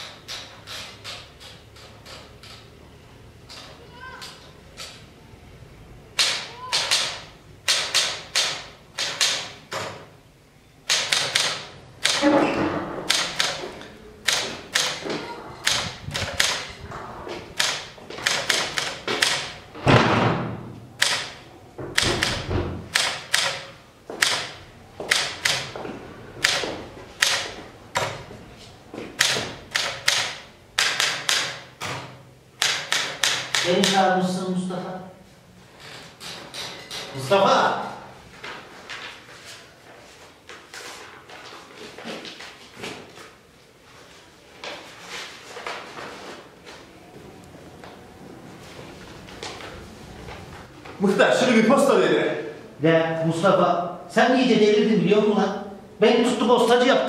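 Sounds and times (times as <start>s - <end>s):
typewriter key strikes: 6.2s - 9.9s, 10.9s - 12.2s, 13.1s - 13.6s, 17.6s - 19.5s, 21.0s - 25.8s, 32.6s - 34.0s.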